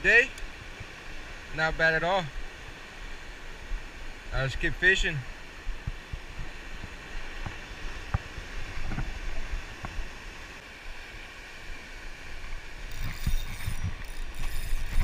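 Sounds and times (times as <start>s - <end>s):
wind on microphone: 5.6s - 10.2s, 12.5s - 15.0s.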